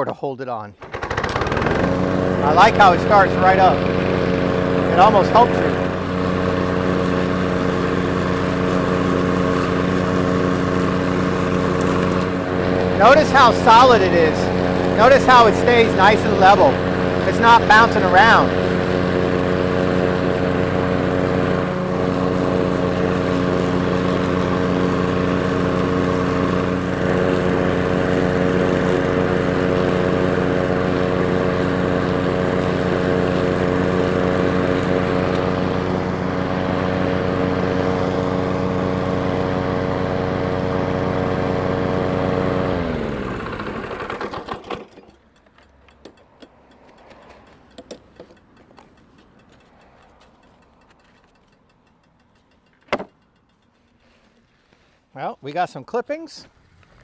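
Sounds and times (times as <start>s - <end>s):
engine winding down: 0.8s - 54.0s, 56.4s - 57.0s
lawn mower engine running: 0.8s - 54.9s, 56.4s - 57.0s.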